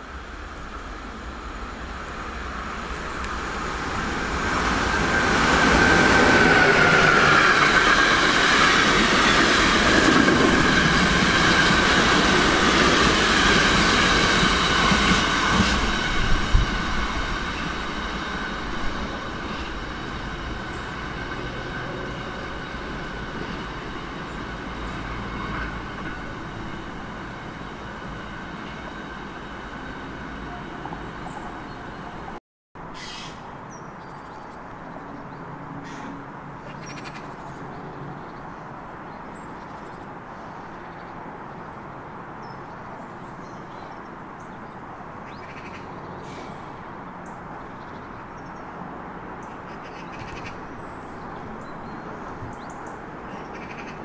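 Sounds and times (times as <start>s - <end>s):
high whine of locomotive: 0.0s - 32.4s
train wheels rushing over rails: 0.3s - 32.4s.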